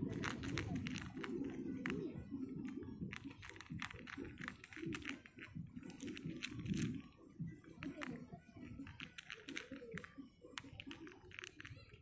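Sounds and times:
cat crunching dry kibble: 0.0 - 1.5, 3.1 - 6.9, 8.8 - 11.9
low background murmur: 0.0 - 12.0.

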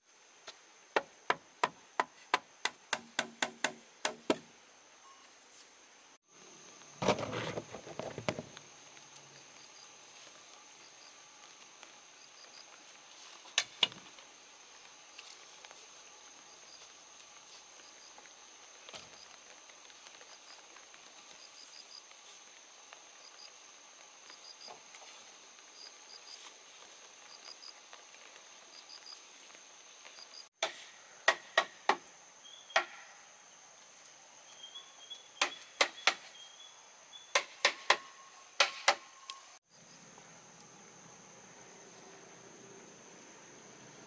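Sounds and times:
chopping strikes on wood: 1.0 - 4.5, 30.6 - 32.0, 32.7 - 33.1, 35.4 - 36.3, 37.4 - 39.0.

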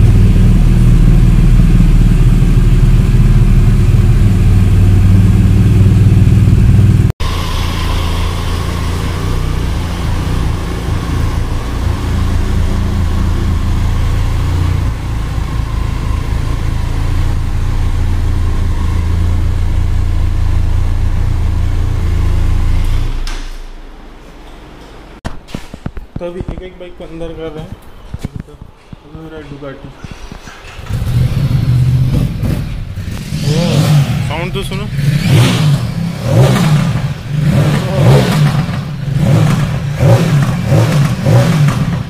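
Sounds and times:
motorcycle engine idling: 0.0 - 22.7
motorcycle engine running loud: 0.0 - 22.8, 30.8 - 42.0.

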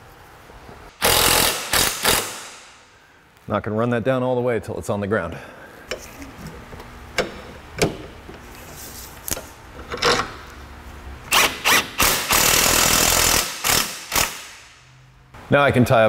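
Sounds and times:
power tool spinning nut: 1.0 - 2.5, 11.3 - 14.5.

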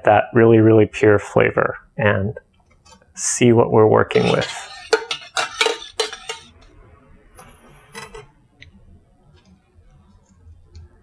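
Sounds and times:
metal spoon clinking on saucepan: 4.2 - 6.5.

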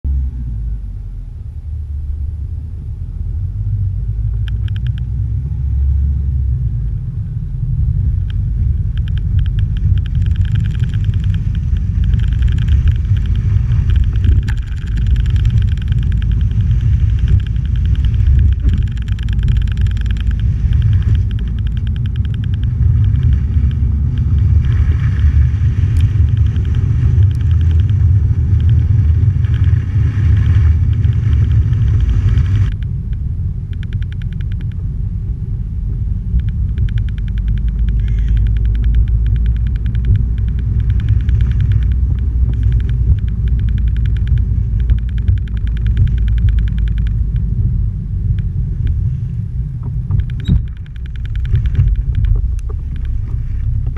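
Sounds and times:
vehicle wind and road rumble: 0.0 - 53.9
fast fine rattling: 8.8 - 32.8.

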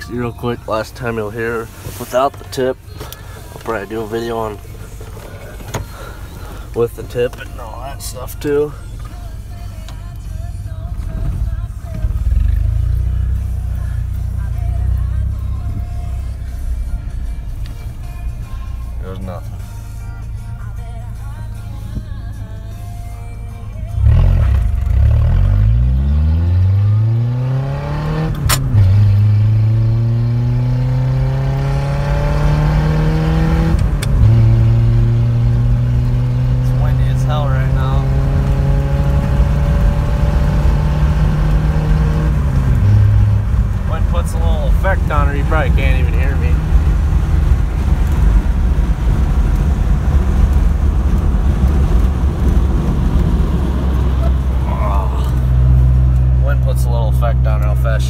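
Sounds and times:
road noise: 0.0 - 58.0
truck engine accelerating: 10.1 - 18.3, 23.9 - 58.0.

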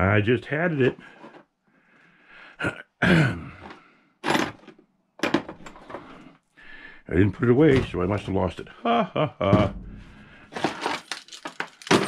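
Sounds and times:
man's throat noises: 2.6 - 3.7
man sighing: 8.7 - 10.5
drill bits clicking in plastic case: 10.6 - 12.0.

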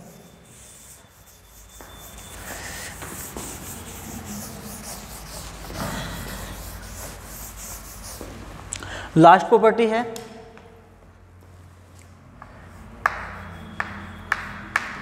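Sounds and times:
cloth rubbing blackboard: 0.0 - 8.4.

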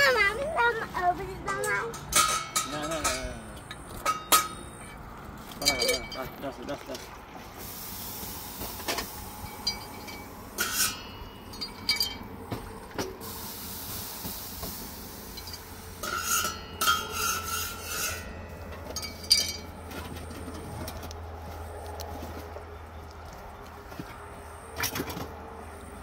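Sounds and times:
objects clinking and knocking: 5.6 - 6.5, 9.4 - 12.4, 15.4 - 21.1
loud scraping bursts: 15.9 - 18.8.

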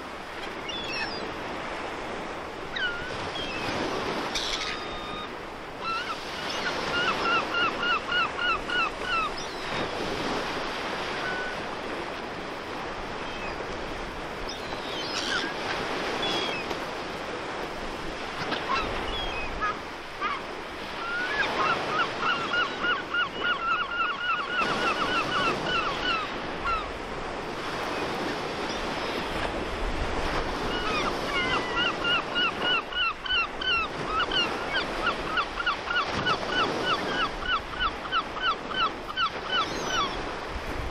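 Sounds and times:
surf washing: 0.0 - 40.9
gulls calling: 0.5 - 17.0, 18.2 - 27.0, 30.2 - 40.9.

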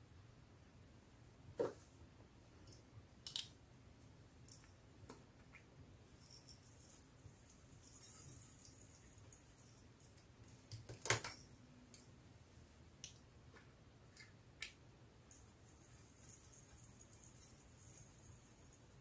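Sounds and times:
glitter rattling: 6.2 - 10.1.

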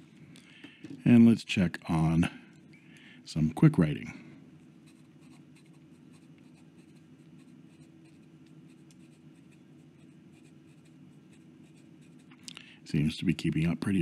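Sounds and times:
pen nib scratching on paper: 4.8 - 12.4.

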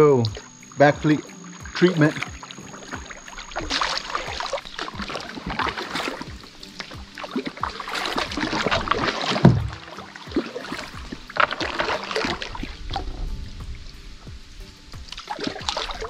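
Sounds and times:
water sloshing and splashing: 0.0 - 16.0
knocks against kayak hull: 5.0 - 12.5
heavy thump: 9.4 - 9.8.

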